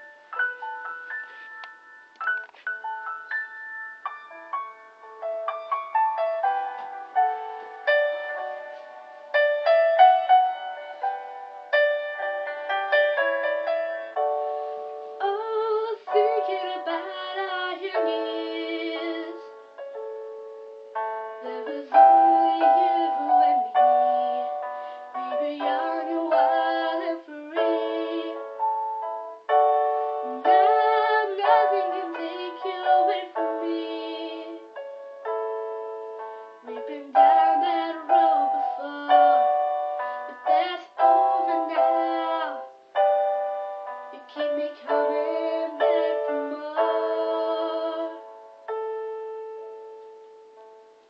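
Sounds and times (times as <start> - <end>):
slow piano ballad: 0.0 - 51.0
young woman singing softly: 15.2 - 19.7, 21.3 - 29.0, 30.0 - 34.9, 36.6 - 43.0, 43.9 - 48.5.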